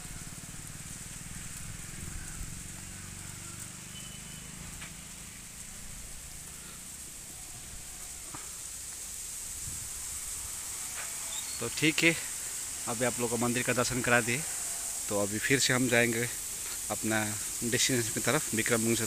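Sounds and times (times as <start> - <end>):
insects droning: 0.0 - 19.0
wind buffeting microphone: 9.4 - 10.5.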